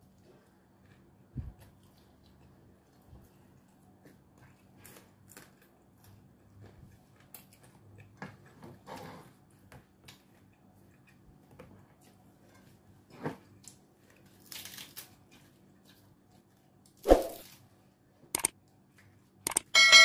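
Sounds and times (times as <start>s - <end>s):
small clicks: 18.3s - 18.5s, 19.5s - 19.7s.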